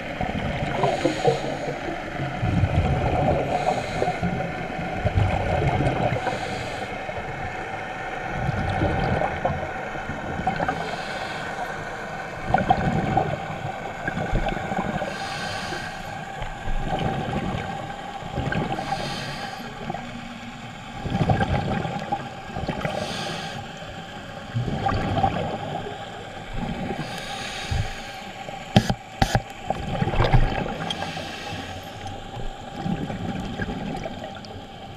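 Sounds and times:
underwater regulator breathing: 0:00.7 - 0:01.9, 0:03.3 - 0:04.4, 0:06.1 - 0:07.0, 0:10.6 - 0:12.0, 0:14.9 - 0:16.6, 0:18.5 - 0:20.2, 0:22.7 - 0:24.1, 0:26.8 - 0:29.6, 0:30.7 - 0:32.7.

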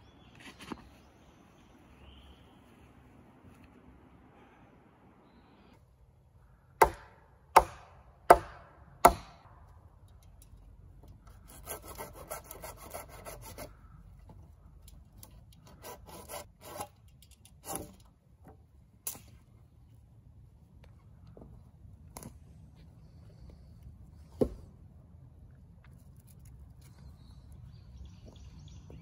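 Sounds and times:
hand tool striking wood: 0:06.8 - 0:09.5
rasping and scraping on wood: 0:11.2 - 0:14.0, 0:15.2 - 0:18.0.

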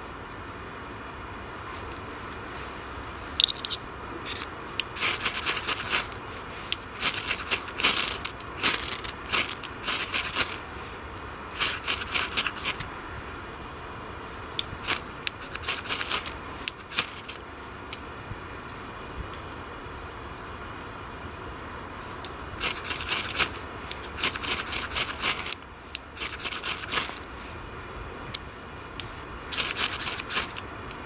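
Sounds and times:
striker scraping ferro rod: 0:03.4 - 0:10.6, 0:11.6 - 0:12.9, 0:14.6 - 0:17.4, 0:22.2 - 0:25.6, 0:29.0 - 0:30.6.

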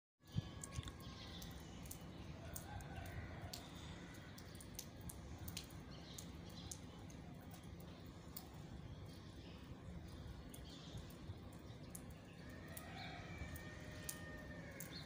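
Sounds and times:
light sharp ticks: 0:00.6 - 0:08.6, 0:10.1 - 0:15.0
rooster crowing: 0:12.4 - 0:15.0.

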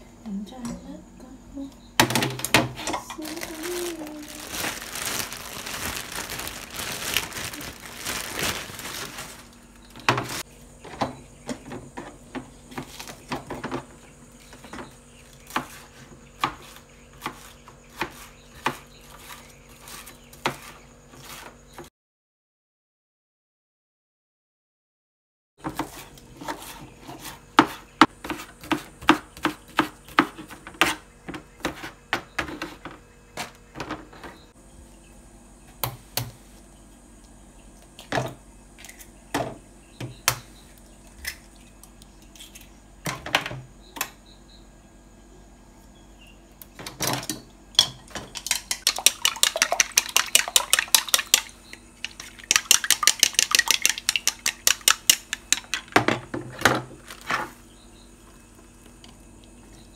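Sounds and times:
knife chopping on plastic board: 0:27.6 - 0:31.9
chopsticks beating eggs in bowl: 0:48.3 - 0:55.9.

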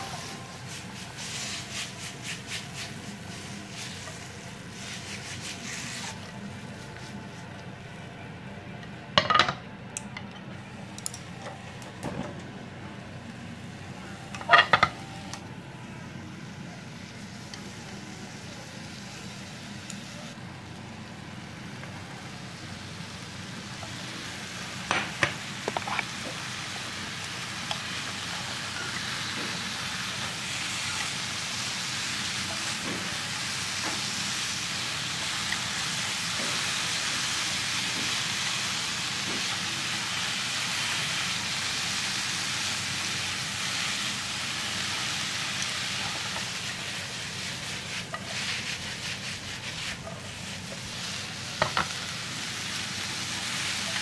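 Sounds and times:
meat sizzling in frying pan: 0:00.0 - 0:06.2, 0:14.3 - 0:15.2, 0:21.1 - 0:54.0
clattering against pan: 0:14.4 - 0:15.0.

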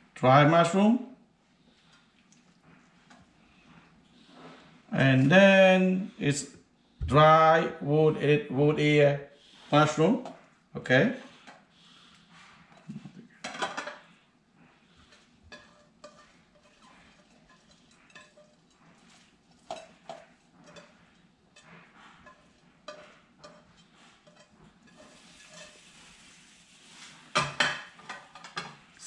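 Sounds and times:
food moved in baking dish: 0:15.0 - 0:28.8.

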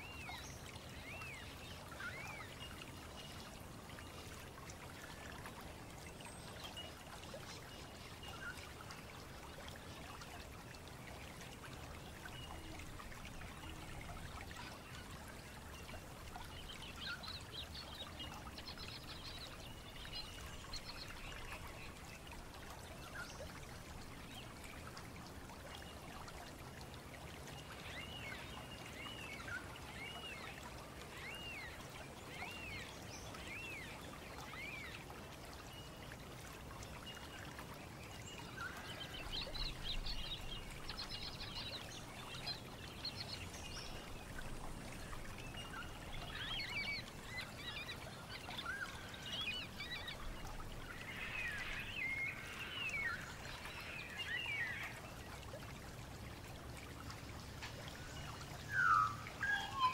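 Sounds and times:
birds chirping and trilling: 0:58.0 - 0:59.9.

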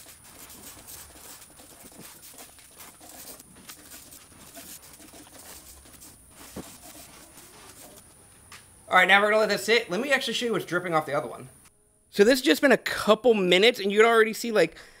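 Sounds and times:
spray bottle spritzing: 0:00.0 - 0:08.0.

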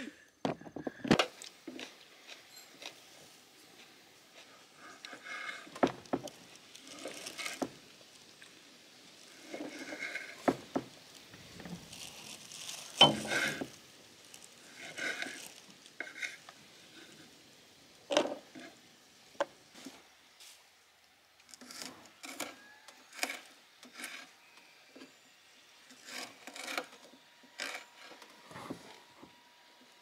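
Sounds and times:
spoon scraping in cooking pot: 0:13.0 - 0:13.8.

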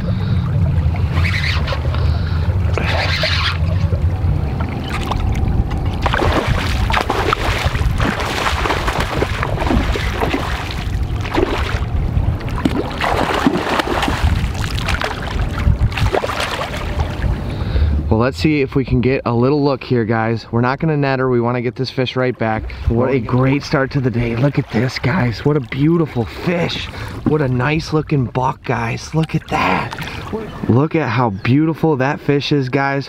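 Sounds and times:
steady low rumble: 0:00.0 - 0:32.8
fish splashing at water surface: 0:06.0 - 0:17.2.

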